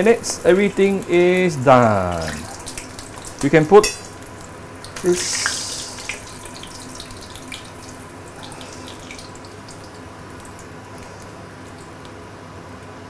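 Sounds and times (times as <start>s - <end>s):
oil sizzling in a frying pan: 2.2s - 12.1s.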